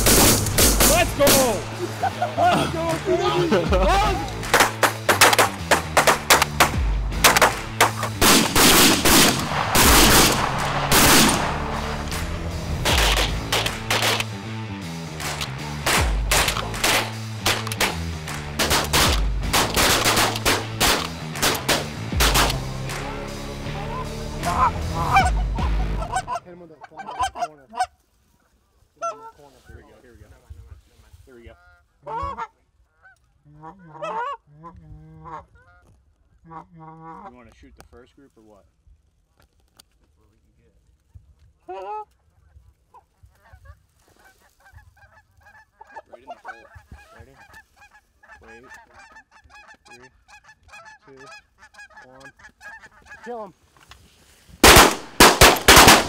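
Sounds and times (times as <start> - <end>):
background music with low notes: 0.0 - 27.8, 54.6 - 56.0
shotgun blasts: 4.5 - 11.7, 54.6 - 56.0
geese honking: 15.2 - 29.8, 31.3 - 37.4, 42.8 - 53.6.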